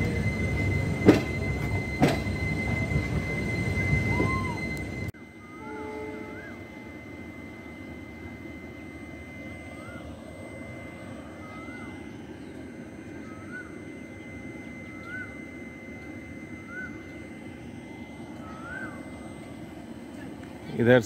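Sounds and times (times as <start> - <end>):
electric locomotive humming: 0.0 - 21.0
thin high whine: 0.0 - 21.0
bird calling: 9.7 - 10.2, 11.1 - 15.6, 16.5 - 17.6, 18.2 - 20.4.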